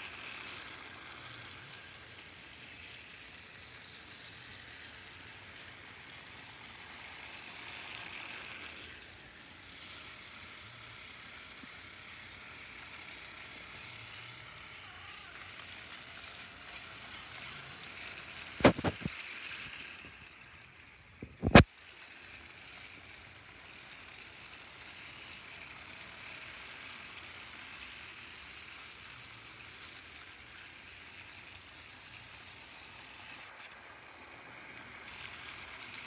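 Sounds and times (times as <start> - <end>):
toy train engines whirring: 0.0 - 36.0
sharp plastic clacks: 18.6 - 19.2, 21.2 - 21.7.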